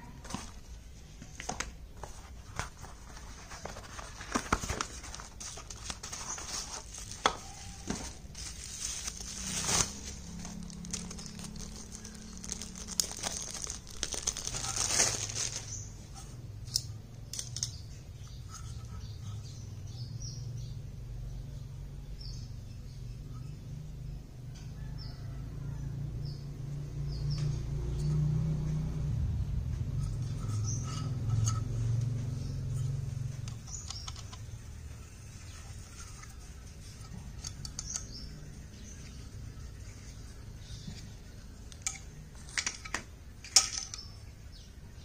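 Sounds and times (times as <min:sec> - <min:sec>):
plastic wrap crinkling and tearing: 0:03.1 - 0:16.0
low steady hum: 0:25.4 - 0:45.0.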